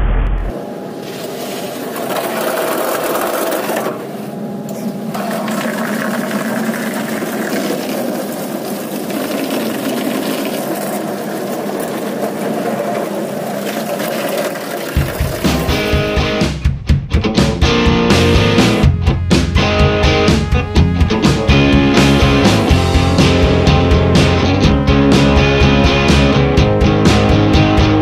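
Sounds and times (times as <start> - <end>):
water jets drumming on glass: 5.2 - 16.0.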